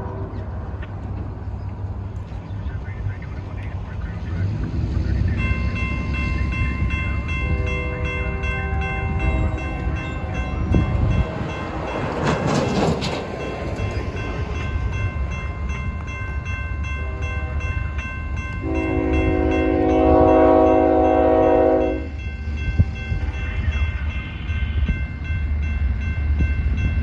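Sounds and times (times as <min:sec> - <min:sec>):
crossing warning bell dinging: 0:04.4 - 0:27.0
locomotive air horn blasts: 0:07.3 - 0:10.8, 0:16.9 - 0:17.5, 0:18.6 - 0:22.2.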